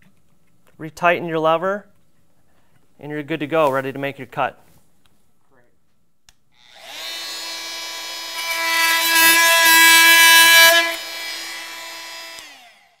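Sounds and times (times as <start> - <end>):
oscillating multi-tool buzzing: 6.6 - 13.0
blade cutting into wood: 6.7 - 13.0.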